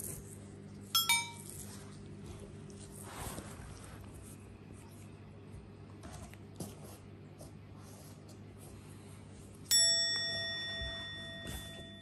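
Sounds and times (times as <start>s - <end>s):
faint room noise: 0.0s - 12.0s
bell ding: 1.0s - 1.5s, 9.7s - 12.0s.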